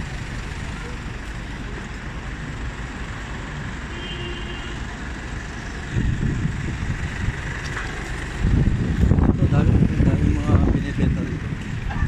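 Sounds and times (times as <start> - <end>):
road traffic rumble: 0.0 - 12.0
wind buffeting microphone: 5.8 - 12.0.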